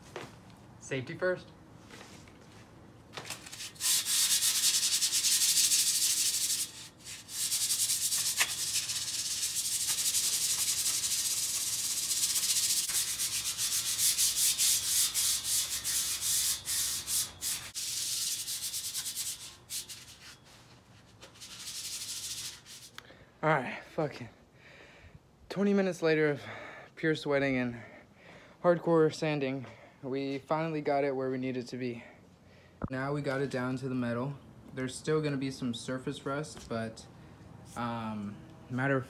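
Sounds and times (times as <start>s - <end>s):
sandpaper rasping on metal: 3.5s - 20.4s, 21.3s - 22.9s.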